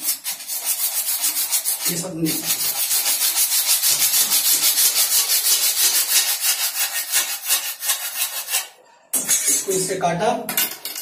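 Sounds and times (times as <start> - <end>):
hacksaw cutting plastic pipe: 2.6 - 9.6.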